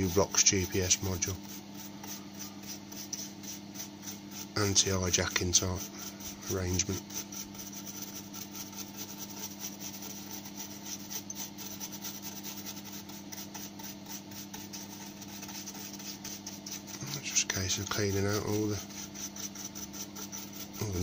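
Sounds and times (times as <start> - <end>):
paintbrush bristles scratching board: 0.0 - 21.0
steady low hum: 0.0 - 21.0.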